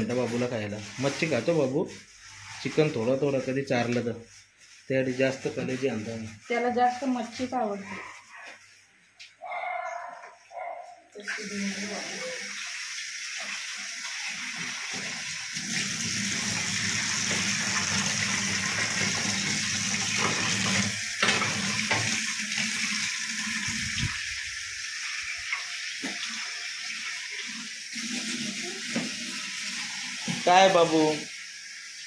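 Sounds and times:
food sizzling in oil: 0:11.2 - 0:32.0.

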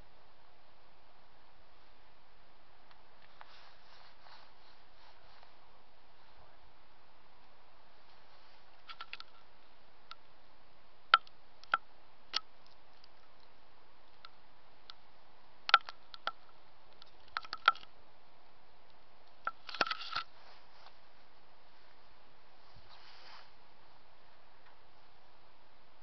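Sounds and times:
faint hiss: 0:00.0 - 0:26.0
sharp clicks and ticks: 0:11.2 - 0:15.0, 0:15.7 - 0:17.9.

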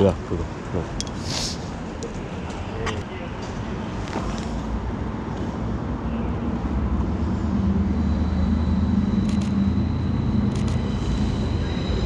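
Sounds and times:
tram rumbling on tracks: 0:00.0 - 0:12.0
high electric whine: 0:06.5 - 0:12.0.

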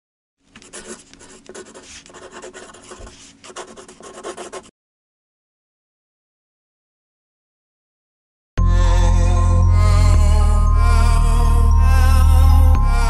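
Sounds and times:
pen scratching on paper: 0:00.6 - 0:04.7.

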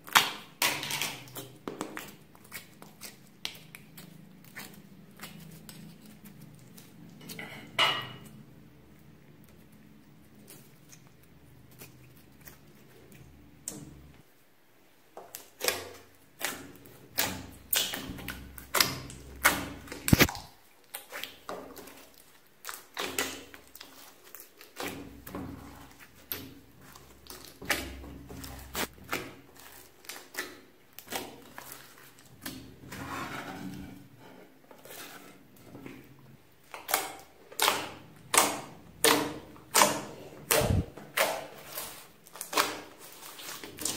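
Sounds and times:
slime sticky clicks and pops: 0:20.1 - 0:20.5.

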